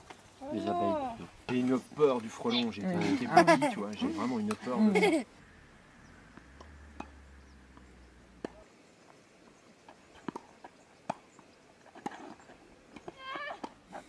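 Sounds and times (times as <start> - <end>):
tennis balls struck by rackets: 6.3 - 8.7, 10.2 - 11.4.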